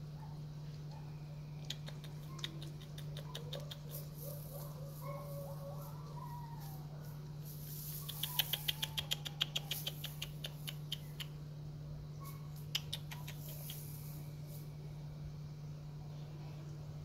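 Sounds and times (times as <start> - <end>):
porcupine sharp clicks: 1.6 - 4.0, 7.9 - 11.4, 12.6 - 14.0.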